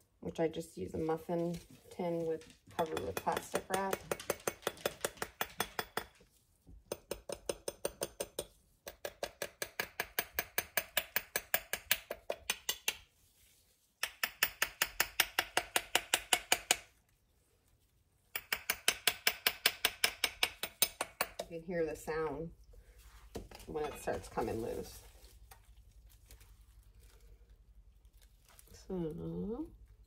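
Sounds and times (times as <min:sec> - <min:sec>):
metal spoon tapping on mold: 0:02.8 - 0:13.1, 0:14.0 - 0:16.9, 0:18.3 - 0:21.6, 0:23.3 - 0:24.5.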